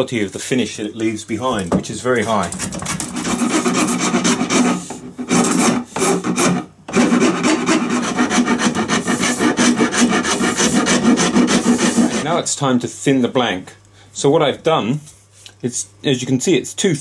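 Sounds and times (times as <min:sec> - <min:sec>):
hand file rasping on wood: 0:02.6 - 0:12.3.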